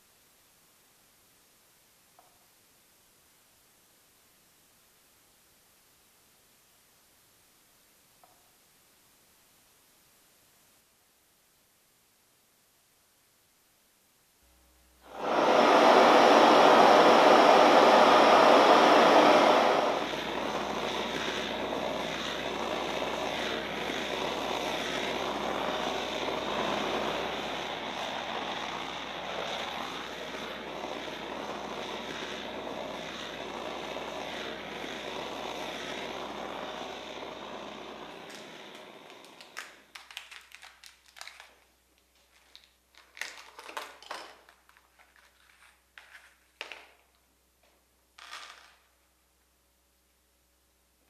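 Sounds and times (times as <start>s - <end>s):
gas blowtorch rushing: 15.0s - 40.1s.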